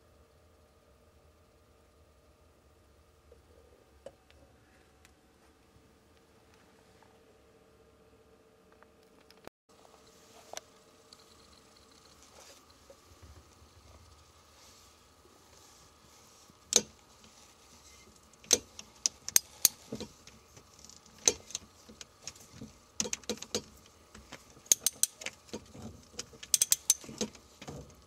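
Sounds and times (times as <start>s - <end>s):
ratcheting wrench clicking: 24.6s - 25.6s, 26.2s - 27.8s.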